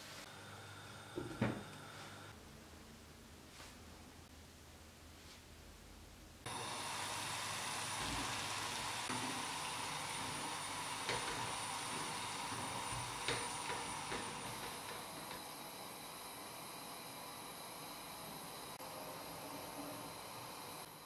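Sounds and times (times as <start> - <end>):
vegetables sizzling in a frying pan: 6.5 - 15.3.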